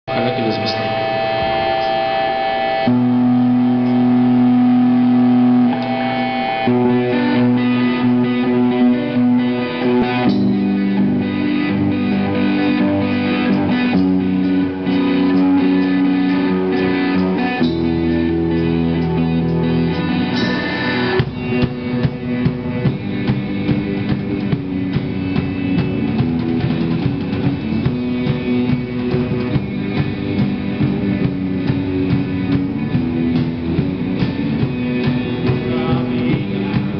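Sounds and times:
electric guitars and bass chords: 0:00.0 - 0:36.9
drum kit beat: 0:00.1 - 0:36.9.

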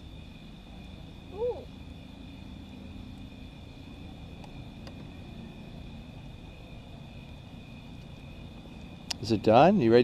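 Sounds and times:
wood fire rumbling: 0:00.0 - 0:10.0
child vocal sound: 0:01.3 - 0:01.7.

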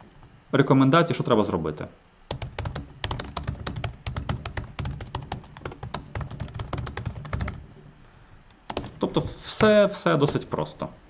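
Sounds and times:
keyboard typing: 0:02.3 - 0:07.7, 0:08.6 - 0:10.5.

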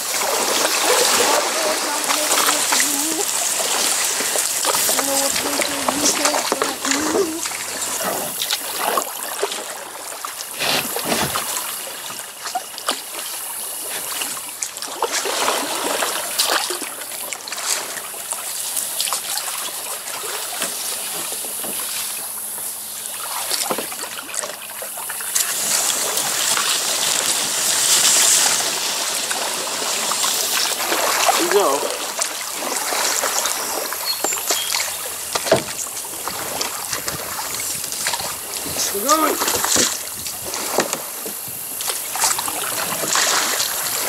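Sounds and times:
sharp water splashes: 0:00.0 - 0:21.1, 0:21.8 - 0:44.0
river water trickling: 0:00.0 - 0:44.0.

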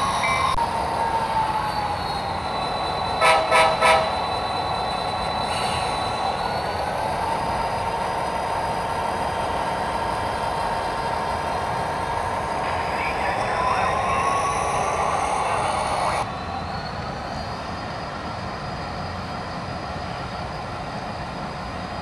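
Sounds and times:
diesel horn blasts: 0:03.2 - 0:04.1
steady running drone with whine: 0:07.2 - 0:16.5.

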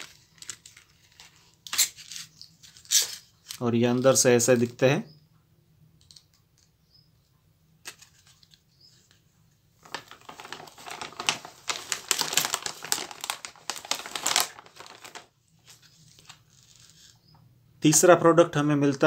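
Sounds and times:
plastic pouch crinkling: 0:09.8 - 0:17.1.

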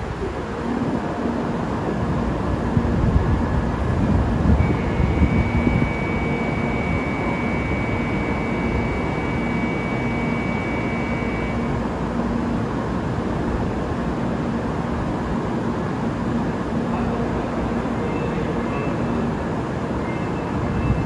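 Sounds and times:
high-speed train rushing rumble: 0:00.0 - 0:21.0
thin high whine: 0:04.5 - 0:12.3.

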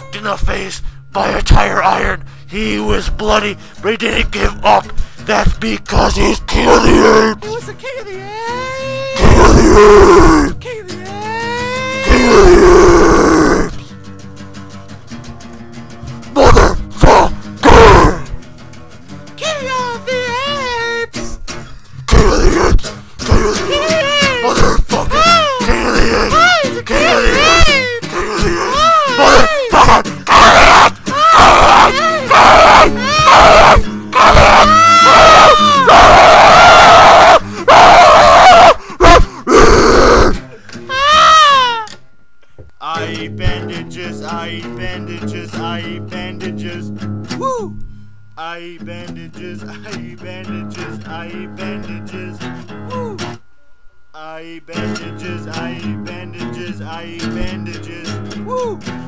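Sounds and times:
person screaming and shrieking: 0:06.0 - 0:07.4, 0:08.2 - 0:13.8, 0:16.4 - 0:18.3, 0:19.6 - 0:21.1, 0:22.1 - 0:41.9
acoustic guitar strumming: 0:13.8 - 0:22.1, 0:22.8 - 0:30.3, 0:30.9 - 0:31.2, 0:31.9 - 0:32.3, 0:32.9 - 0:34.9, 0:41.8 - 0:53.7, 0:54.3 - 0:59.0.

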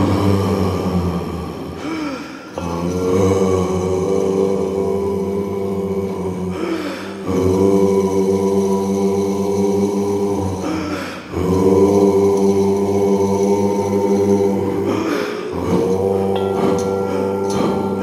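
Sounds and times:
choral chanting drone: 0:00.0 - 0:18.0
breathy rush: 0:01.5 - 0:02.6, 0:06.5 - 0:07.4, 0:14.6 - 0:18.0.

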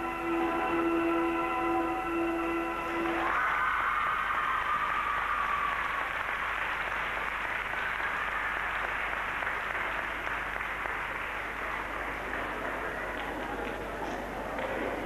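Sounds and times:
held music note: 0:00.0 - 0:03.3
audience applauding: 0:03.2 - 0:15.0.

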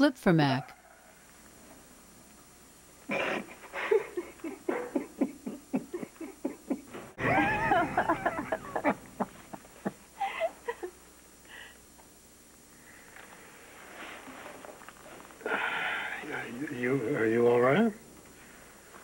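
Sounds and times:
people laughing: 0:03.2 - 0:11.0.

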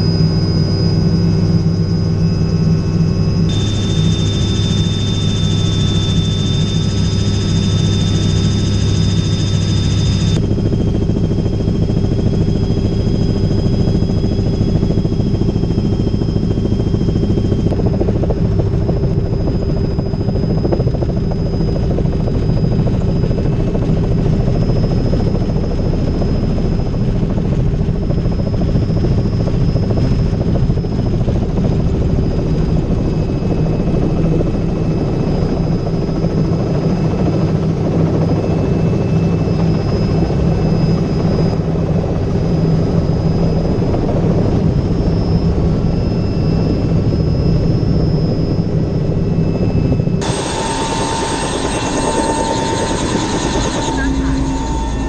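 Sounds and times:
thin high whine: 0:00.0 - 0:17.7, 0:45.3 - 0:55.0
helicopter rotor and turbine noise: 0:00.0 - 0:55.0.

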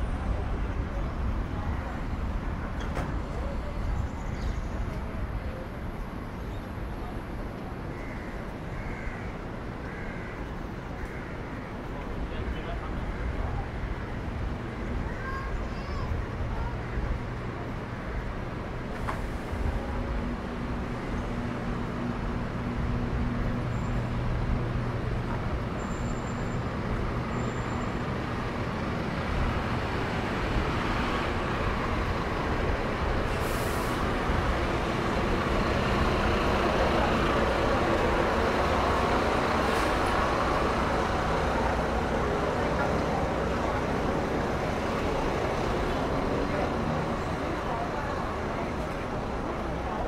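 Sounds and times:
passing vehicle engines: 0:16.1 - 0:50.0.

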